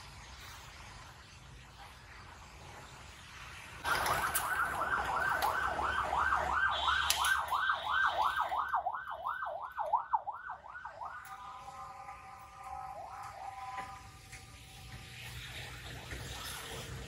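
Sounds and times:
ambulance siren wailing: 0:03.8 - 0:14.1.

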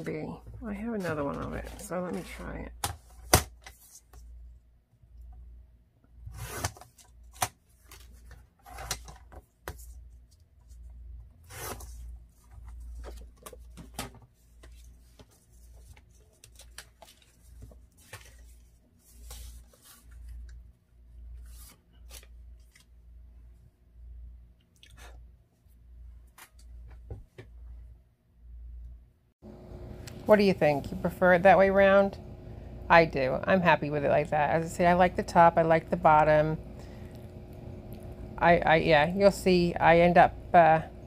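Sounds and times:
paper rustling: 0:11.5 - 0:20.6.

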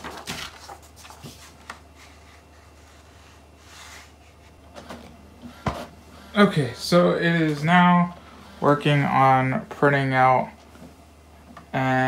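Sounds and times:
paper rustling: 0:00.0 - 0:04.6.

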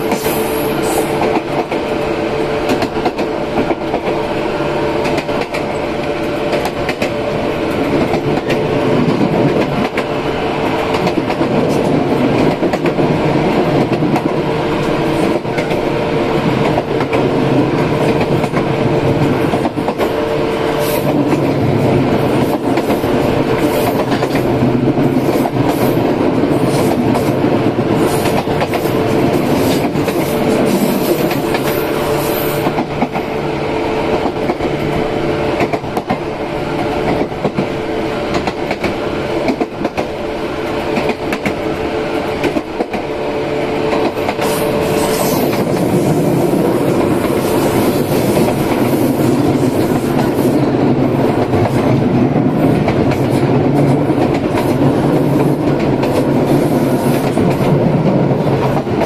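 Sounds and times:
train running noise: 0:00.0 - 0:59.0
wheels clacking on rail joints: 0:16.6 - 0:33.4.

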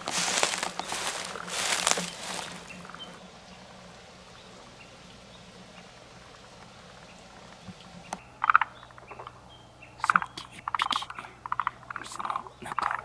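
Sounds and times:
frog call: 0:08.4 - 0:09.3, 0:10.0 - 0:13.0.

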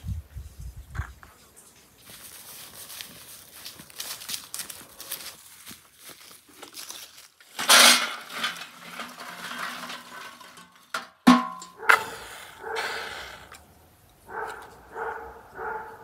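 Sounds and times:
charcoal pieces rattling: 0:06.6 - 0:11.2
charcoal clattering into metal pot: 0:06.7 - 0:12.4.

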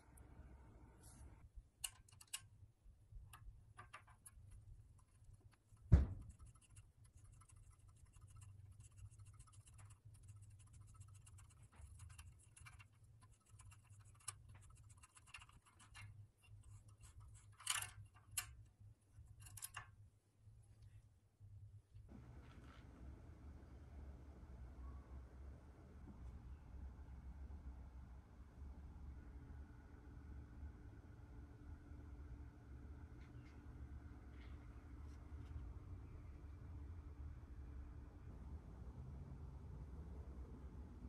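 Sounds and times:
sharp knock: 0:05.9 - 0:06.4
tube cutter clicks and scratches: 0:06.4 - 0:18.6, 0:19.3 - 0:19.9.

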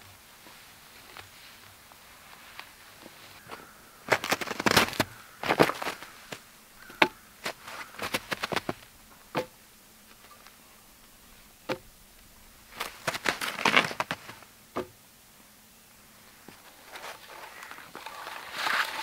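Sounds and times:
boots crunching on snow: 0:00.0 - 0:09.5, 0:11.3 - 0:14.5
wooden knocks of logs set down: 0:06.8 - 0:09.6, 0:11.6 - 0:12.0, 0:12.8 - 0:15.0.

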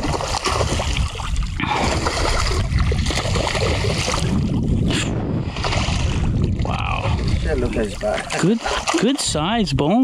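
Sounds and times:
fish splashing in water: 0:00.0 - 0:04.6, 0:05.4 - 0:09.2
wind rumbling on microphone: 0:00.0 - 0:08.3.

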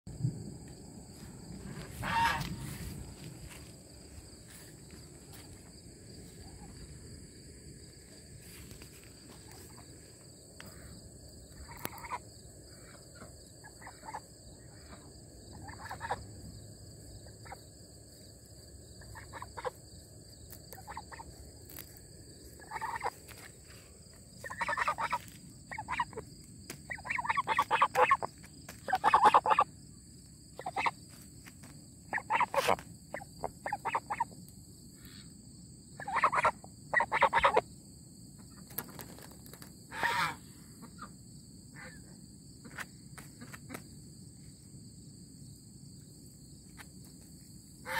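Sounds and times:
ducks calling: 0:01.8 - 0:03.0, 0:12.8 - 0:16.2, 0:19.0 - 0:19.8, 0:22.6 - 0:23.4, 0:24.4 - 0:26.2, 0:26.8 - 0:29.7, 0:30.6 - 0:31.0, 0:32.1 - 0:34.4, 0:36.0 - 0:37.6, 0:39.9 - 0:41.1
geese honking: 0:01.8 - 0:03.0, 0:13.2 - 0:16.2, 0:19.0 - 0:19.8, 0:22.6 - 0:23.2, 0:24.4 - 0:26.2, 0:26.9 - 0:29.7, 0:32.1 - 0:34.3, 0:36.0 - 0:37.6, 0:39.9 - 0:40.4.

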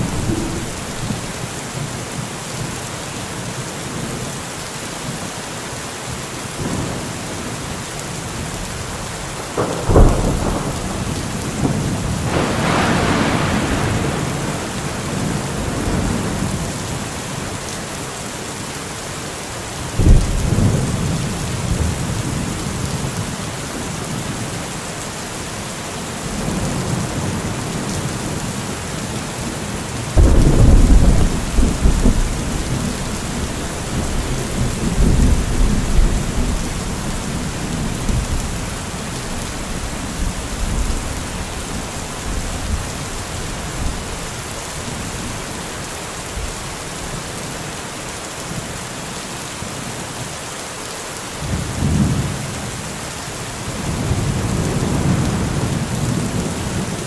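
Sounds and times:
thunder rumbling: 0:00.0 - 0:01.5, 0:09.4 - 0:16.7, 0:30.1 - 0:44.2
heavy rain falling: 0:00.0 - 0:57.0.

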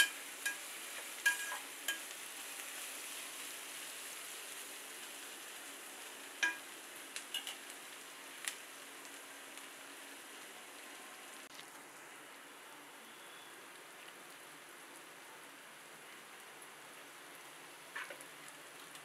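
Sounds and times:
metal spatula clinking on pan: 0:00.0 - 0:02.1, 0:06.4 - 0:06.6, 0:07.3 - 0:07.6
onions sizzling in oil: 0:00.0 - 0:19.0.

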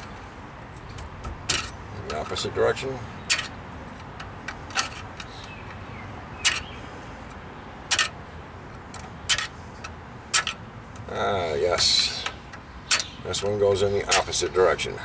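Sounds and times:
sharp metallic clicks: 0:06.4 - 0:11.1, 0:11.7 - 0:14.5.

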